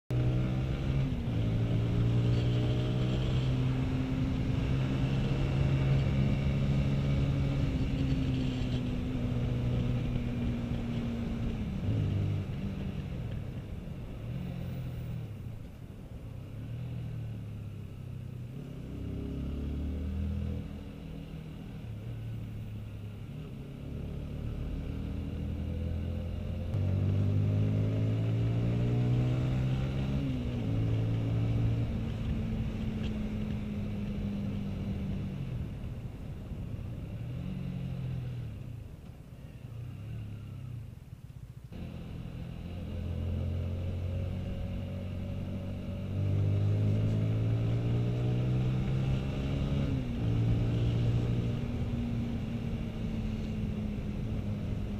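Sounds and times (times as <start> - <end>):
motorcycle engine revving: 0.1 - 13.3, 18.4 - 35.7, 41.7 - 54.9.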